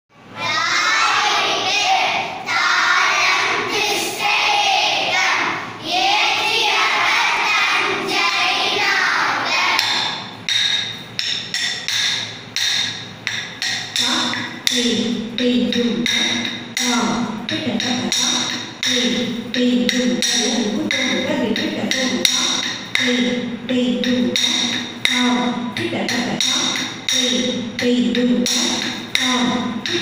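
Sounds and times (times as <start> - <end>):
children's voices in unison: 0.4 - 10.2
rhythmic ringing strikes: 6.3 - 30.0.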